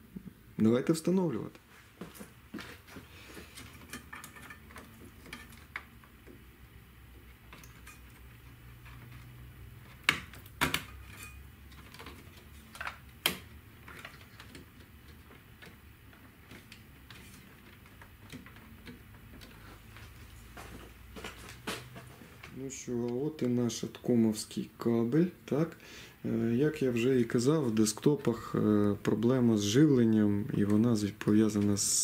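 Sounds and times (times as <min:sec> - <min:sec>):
sharp plastic snaps: 0:11.7 - 0:15.8.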